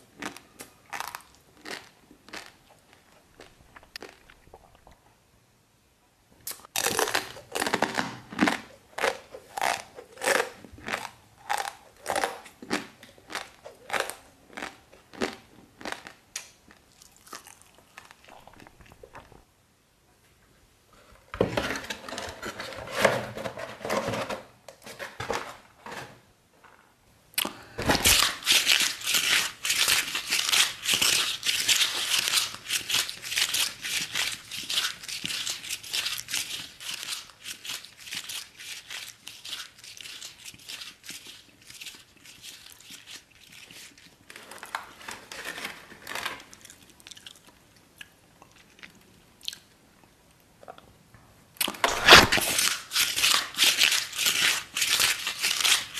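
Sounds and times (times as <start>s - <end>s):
cardboard and noodles crunching: 0.0s - 4.9s, 6.5s - 19.4s, 27.4s - 47.6s, 51.6s - 55.9s.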